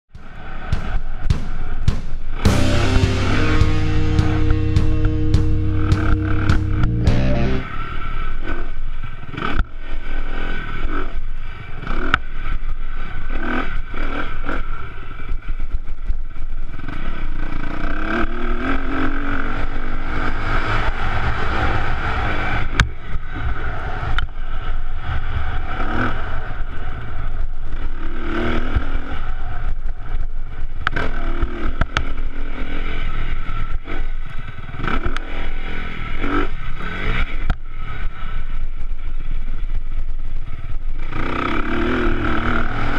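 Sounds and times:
dirt bike engine revving: 41.0s - 42.9s.

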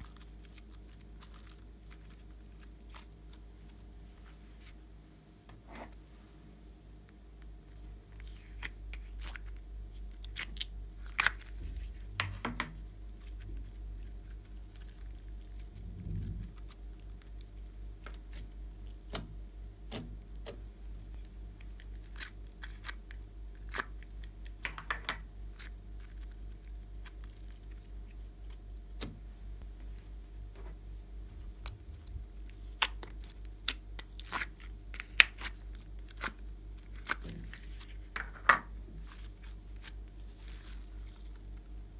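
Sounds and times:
plastic crinkles: 0.0s - 4.3s, 13.0s - 19.2s, 21.6s - 28.9s, 31.6s - 41.9s
steady low hum: 0.0s - 41.9s
sticky slime clicks and crackles: 8.1s - 11.5s, 31.6s - 37.4s.

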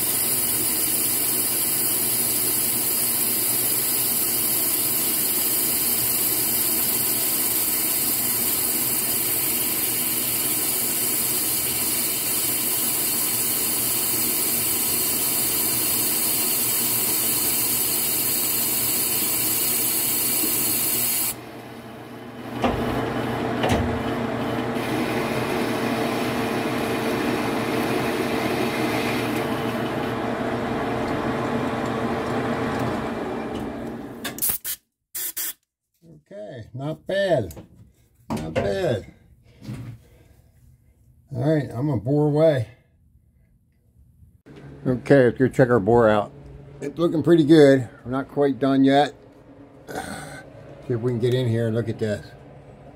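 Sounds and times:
lathe machining hiss: 0.0s - 21.4s, 24.7s - 29.6s
lathe running with low hum: 0.0s - 34.2s, 44.5s - 52.9s.

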